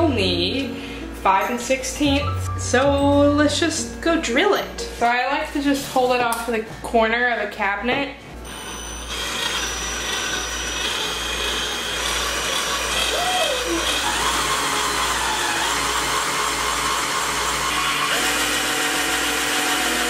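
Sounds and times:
electric drill boring through resin: 8.5s - 20.0s.

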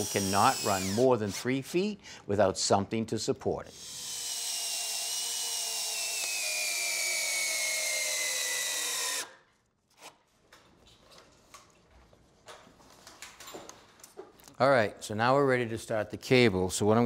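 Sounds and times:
cordless drill motor whine: 0.0s - 1.4s, 3.8s - 9.3s.

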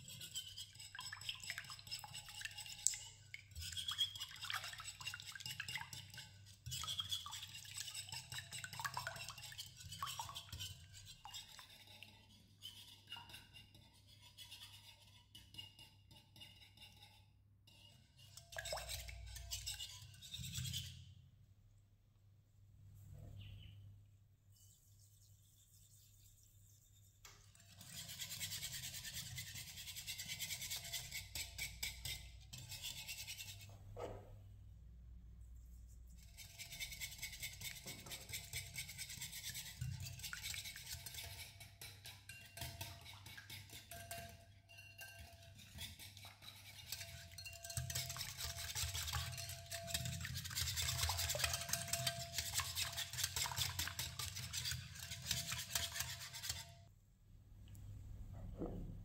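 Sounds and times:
whisk beating eggs in glass bowl: 3.5s - 12.1s, 36.9s - 56.6s.

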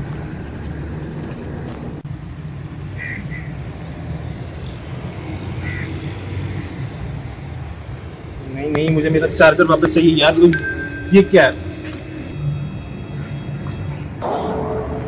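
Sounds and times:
steady low rumble: 0.0s - 2.8s.

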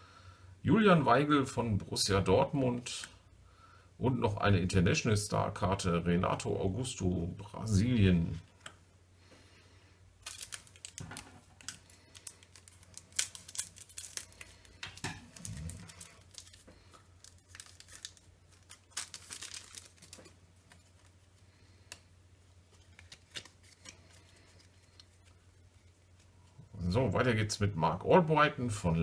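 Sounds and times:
faint steady hum: 0.0s - 29.0s
foil card pack crinkling and tearing: 10.2s - 21.3s, 22.7s - 26.3s.

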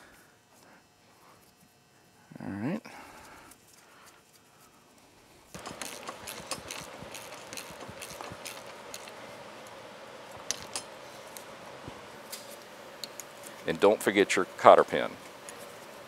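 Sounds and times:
ratchet wrench clicking rapidly: 5.6s - 9.2s.

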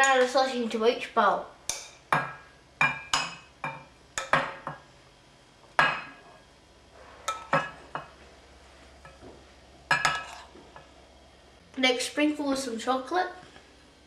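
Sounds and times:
spoon clinking against bowls: 1.7s - 4.8s, 7.3s - 8.2s, 9.9s - 10.5s.

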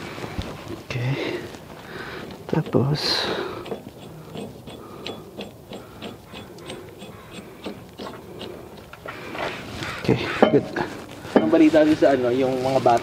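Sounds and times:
socket ratchet clicking: 3.6s - 8.6s.

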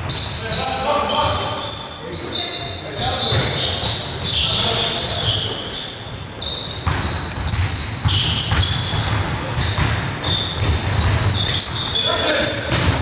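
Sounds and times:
shoes squeaking on floor: 0.0s - 13.0s
ball bouncing: 6.7s - 13.0s.

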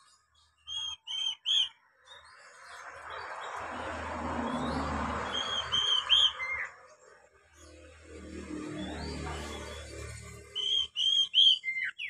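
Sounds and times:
bird whistling: 0.6s - 1.8s, 5.2s - 6.7s, 10.5s - 12.0s.

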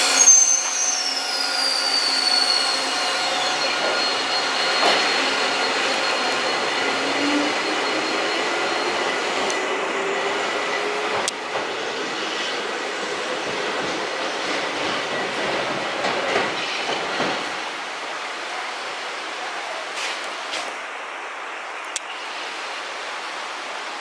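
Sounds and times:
train rolling noise: 0.0s - 18.5s.

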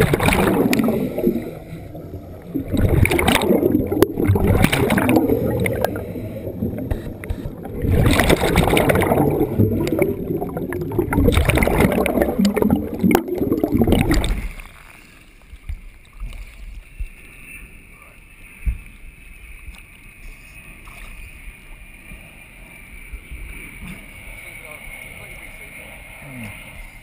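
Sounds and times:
underwater air bubbling: 0.0s - 14.8s
light water splashes: 0.0s - 17.2s.

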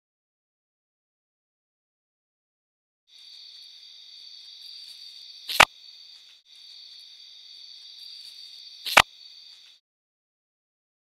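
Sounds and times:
night insects buzzing: 3.1s - 9.8s.

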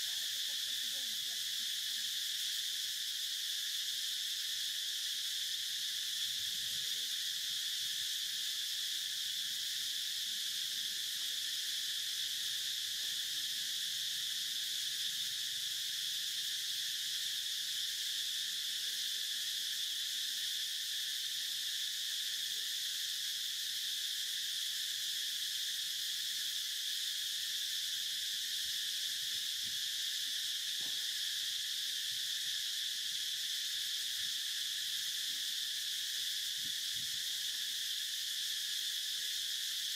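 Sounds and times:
insect chorus: 0.0s - 39.9s.

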